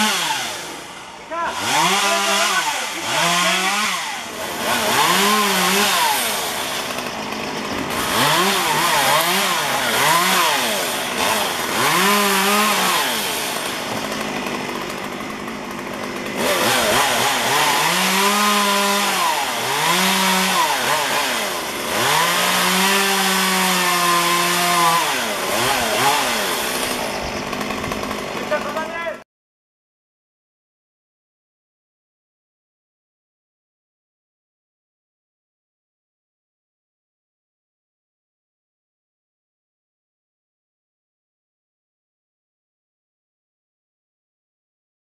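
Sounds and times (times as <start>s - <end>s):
chainsaw revving and cutting: 0.0s - 29.2s.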